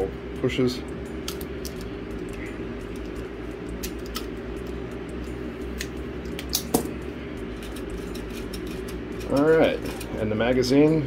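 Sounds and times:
steady low hum: 0.0s - 11.0s
magazine spring clicks: 5.8s - 6.9s.

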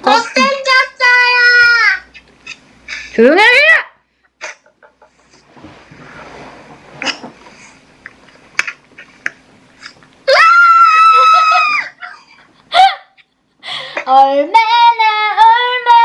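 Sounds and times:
woman screaming: 10.3s - 12.1s.

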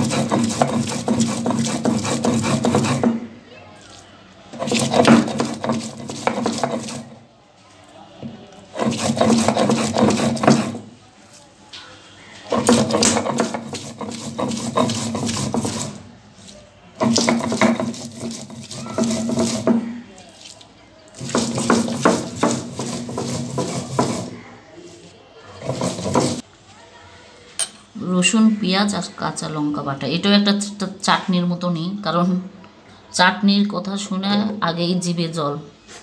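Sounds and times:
grinding stone rasping on stone slab: 0.0s - 3.2s, 4.5s - 7.2s, 8.7s - 10.9s, 12.4s - 16.1s, 17.0s - 19.9s, 21.2s - 24.5s, 25.6s - 26.4s.

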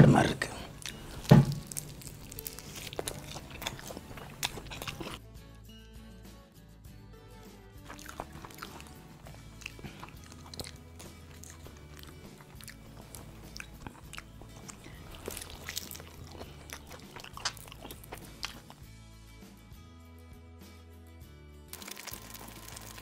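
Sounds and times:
background music: 0.0s - 23.0s
fried chicken crunching: 0.5s - 5.2s, 7.8s - 18.8s, 21.7s - 23.0s.

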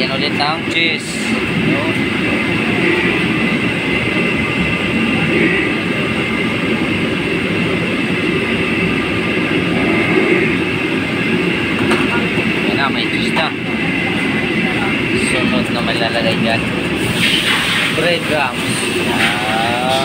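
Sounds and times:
kitchen background roar: 15.5s - 20.0s.

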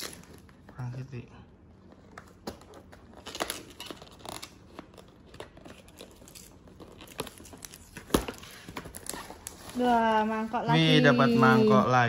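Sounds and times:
paper tearing and crackling: 3.1s - 10.3s.

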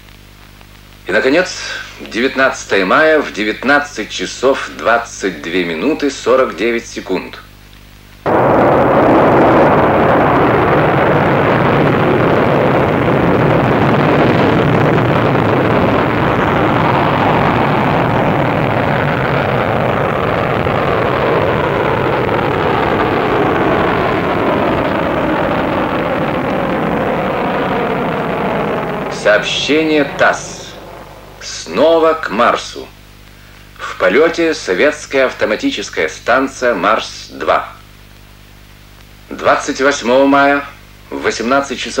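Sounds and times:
rocket engines roaring: 8.2s - 33.2s.

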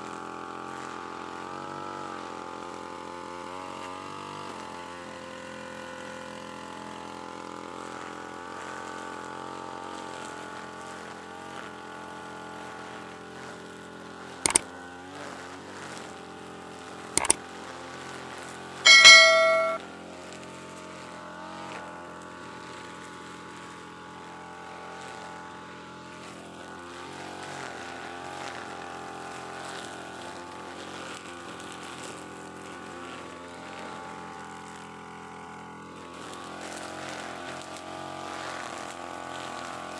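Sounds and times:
ringing bell chime: 18.9s - 19.8s.

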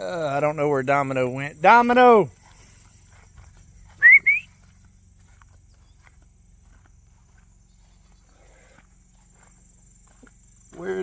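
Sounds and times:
person whistling: 4.0s - 4.5s.

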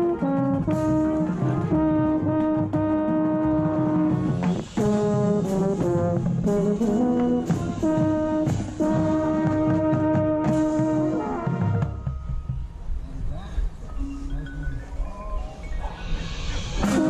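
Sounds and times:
marching band brass chords: 0.0s - 13.0s, 16.7s - 17.0s
percussion hits: 0.0s - 13.0s, 15.4s - 17.0s.

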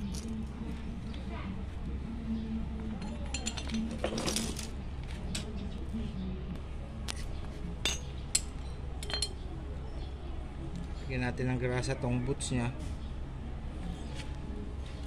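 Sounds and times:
steady low hum: 0.0s - 15.0s
metal clinks and knocks: 2.8s - 5.5s, 7.8s - 9.4s.

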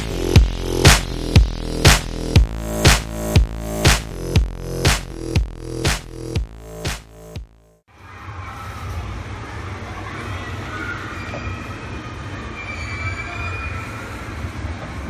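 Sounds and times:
faint high squeals: 10.8s - 14.4s.

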